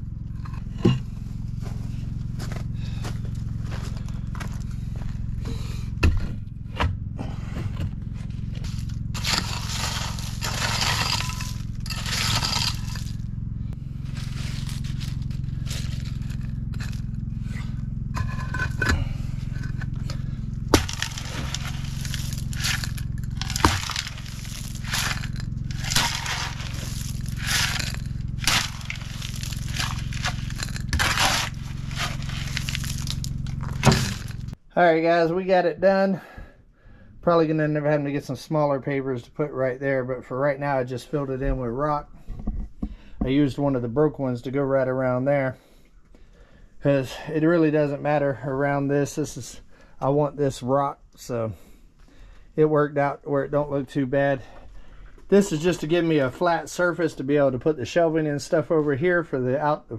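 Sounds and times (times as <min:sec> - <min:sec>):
steady low hum: 0:00.0 - 0:59.9
shovel scraping rock and gravel: 0:08.2 - 0:13.2, 0:14.0 - 0:34.6.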